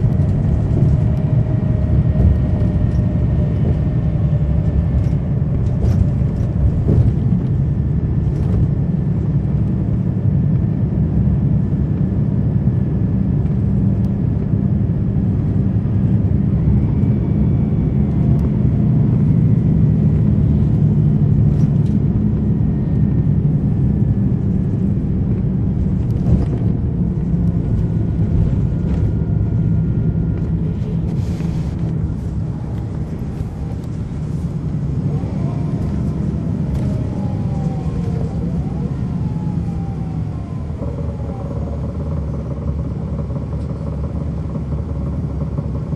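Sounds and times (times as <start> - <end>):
bus diesel engine droning: 0.0 - 45.9
whine rising and falling: 26.0 - 43.4.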